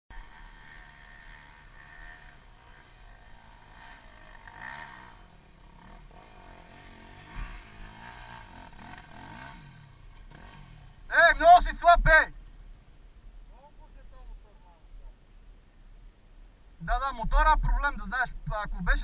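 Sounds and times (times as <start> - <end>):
motorcycle engines idling and revving: 0.1 - 14.5.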